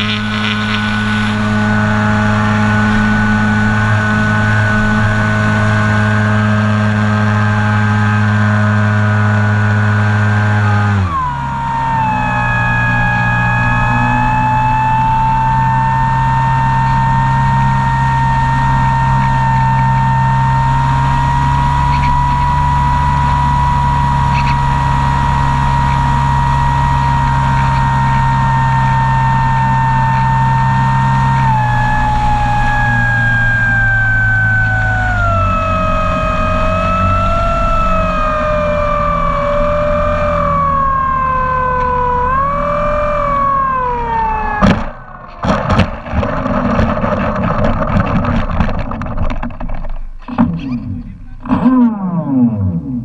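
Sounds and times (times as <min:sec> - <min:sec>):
model airplane motor and propeller: 0:00.0 - 0:53.0.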